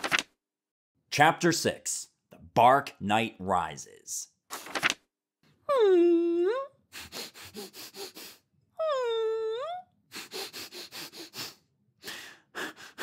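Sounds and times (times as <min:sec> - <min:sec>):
sniffling sobs: 0:06.9 - 0:13.0.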